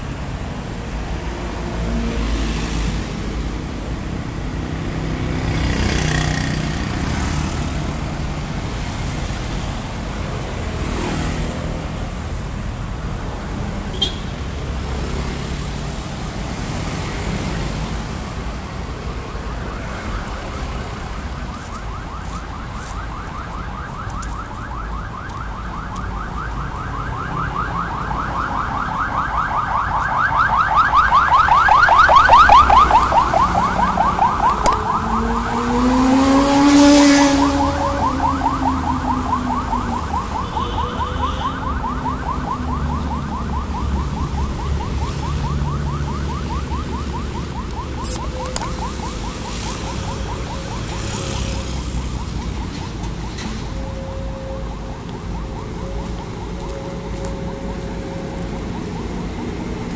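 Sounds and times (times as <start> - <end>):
road traffic: 0.0 - 59.9
vehicle passing with humming tone: 31.8 - 40.2
vehicle passing with buzzing pulse: 32.4 - 39.4.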